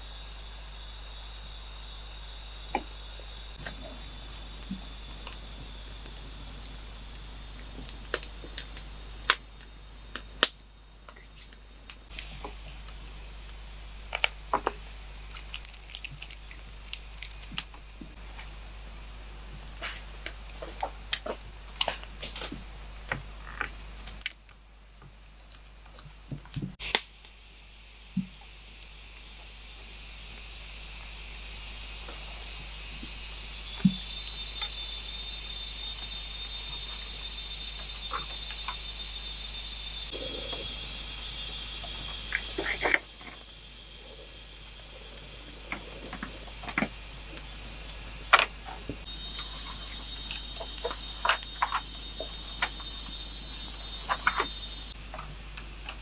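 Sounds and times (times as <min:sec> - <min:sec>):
crickets chirping: 0:00.0 - 0:56.0
campfire crackling and popping: 0:03.6 - 0:18.6, 0:19.6 - 0:27.4.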